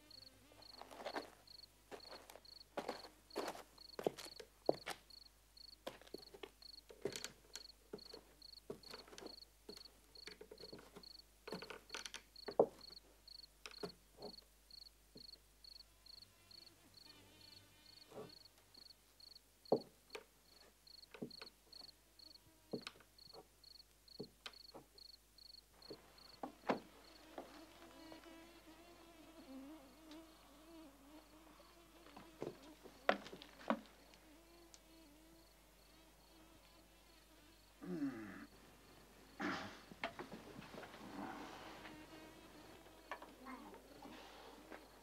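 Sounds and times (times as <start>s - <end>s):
cricket chirping: 0.0s - 22.4s, 23.2s - 26.4s, 27.0s - 28.4s, 32.5s - 40.2s.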